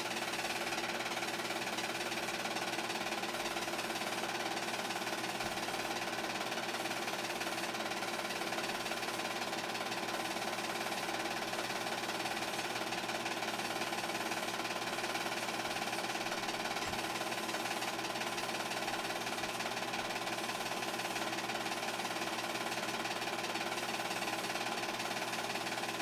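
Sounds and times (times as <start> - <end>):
film projector clatter: 0.0 - 26.0
film projector motor hum: 0.0 - 26.0.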